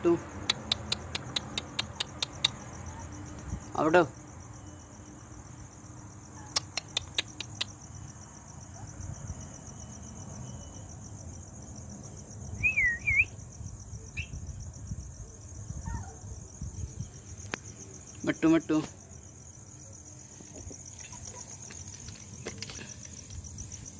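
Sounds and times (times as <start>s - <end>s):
crickets chirping: 0.0s - 23.9s
sharp clicks: 0.4s - 2.6s, 6.6s - 7.7s.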